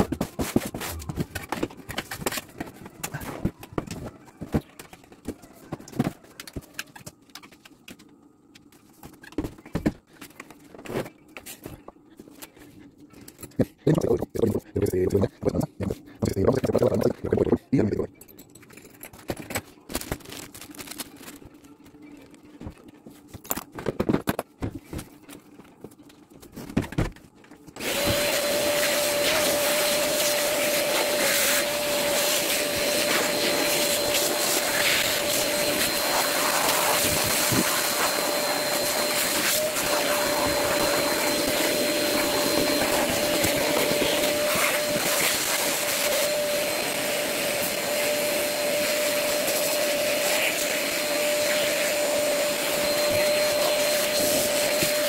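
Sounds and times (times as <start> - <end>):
knocks and handling noises: 0.0 - 13.6
vacuum cleaner running: 27.8 - 55.0.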